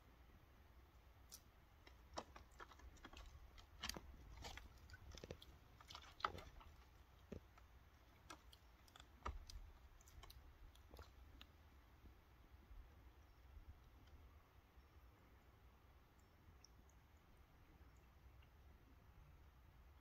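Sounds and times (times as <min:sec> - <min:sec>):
cat pawing water splashes: 0:01.8 - 0:11.4.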